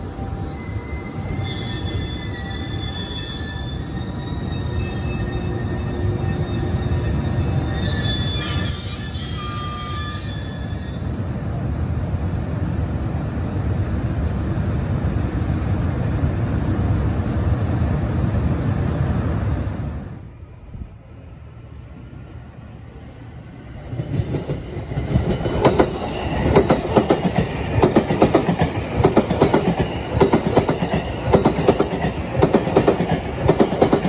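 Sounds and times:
high-pitched wheel squeal: 0.0 - 11.2
train wheel rumble: 23.7 - 34.0.

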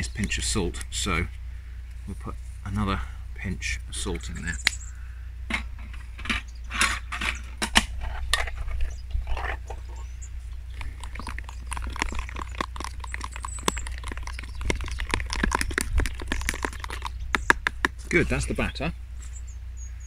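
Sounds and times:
fork beating batter: 10.8 - 18.3.

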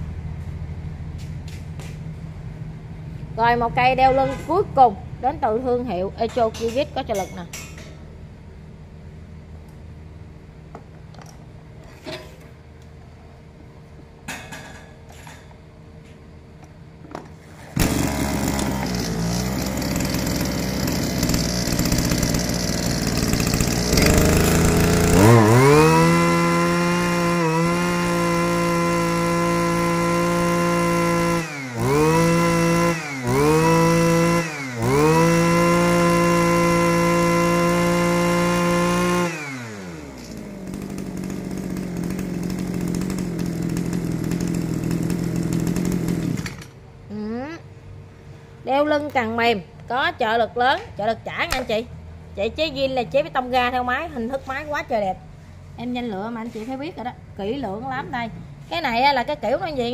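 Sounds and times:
brush cutter engine revving: 17.8 - 46.8.

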